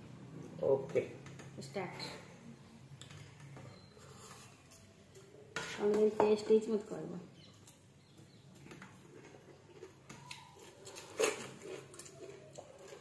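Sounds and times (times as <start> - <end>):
fingers mixing rice on plates: 7.5 - 13.0
chewing and mouth smacks: 8.5 - 13.0.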